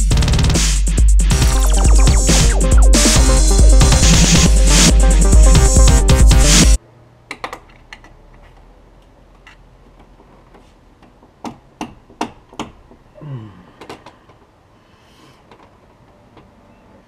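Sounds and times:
electronic music: 0.0s - 6.8s
tone falling in pitch: 1.4s - 6.8s.

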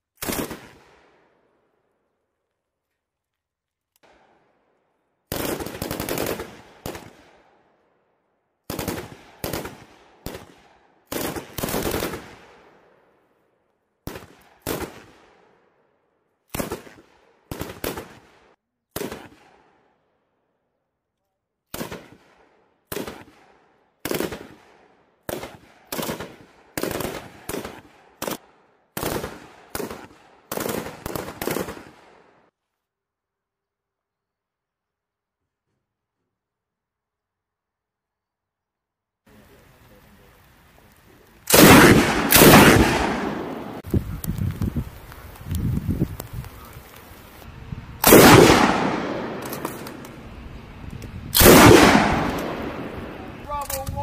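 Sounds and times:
machine guns firing bursts: 5.3s - 7.1s, 11.1s - 12.3s, 29.0s - 32.0s, 41.5s - 43.8s, 48.0s - 50.0s, 51.4s - 53.0s.

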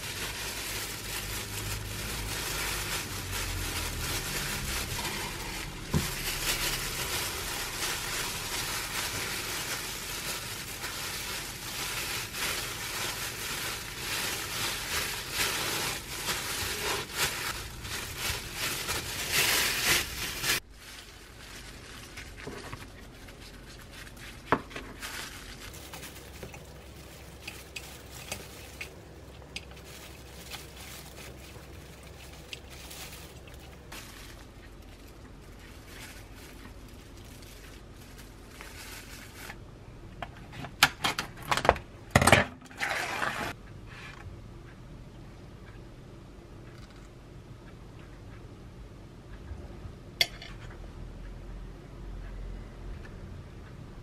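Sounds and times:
plastic gloves rustling: 0.0s - 39.6s.

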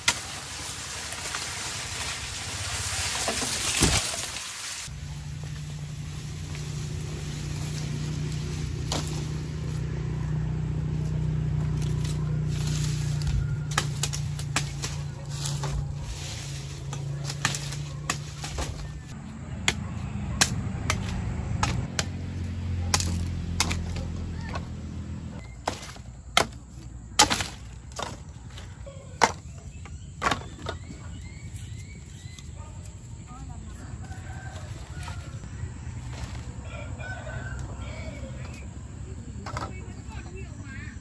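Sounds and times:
knife chopping sugarcane: 8.7s - 9.5s, 11.6s - 15.9s, 16.9s - 24.6s, 25.4s - 28.4s.

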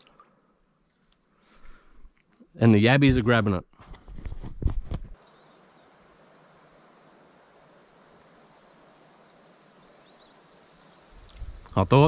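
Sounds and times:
soft steady hiss: 5.2s - 12.0s.

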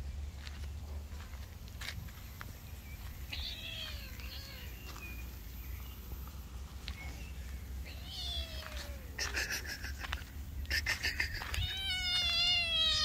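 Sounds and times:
cat meowing: 3.3s - 4.8s, 7.9s - 9.2s, 11.4s - 13.0s.

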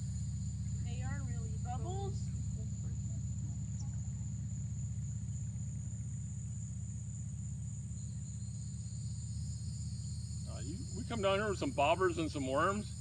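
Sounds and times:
insects shrilling: 0.0s - 13.0s
lower insect chorus: 0.0s - 13.0s.

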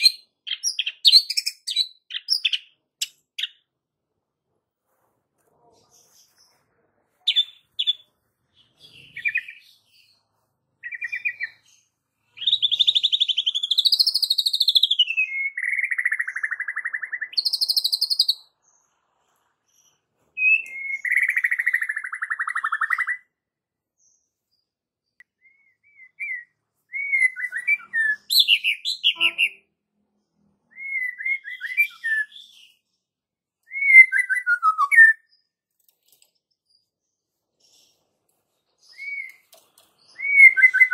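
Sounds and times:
bird singing whistled phrases: 12.4s - 18.5s, 20.4s - 23.2s, 25.2s - 29.6s, 30.7s - 32.7s, 33.7s - 35.3s, 38.9s - 39.5s, 40.1s - 40.9s.

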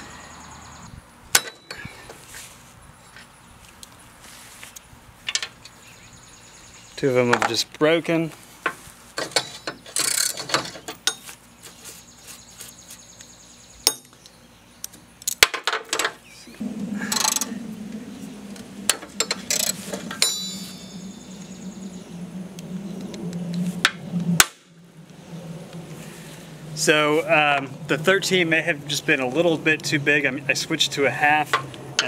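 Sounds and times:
low steady hum: 16.0s - 32.0s.

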